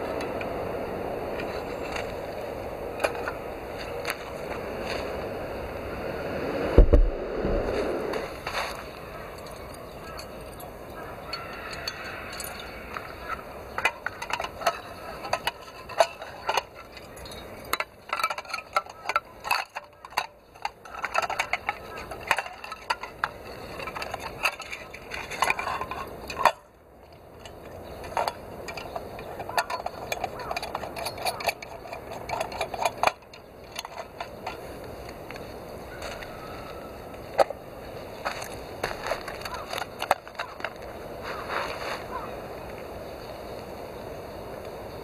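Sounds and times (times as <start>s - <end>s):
metal clinks and scrapes: 8.1s - 42.2s.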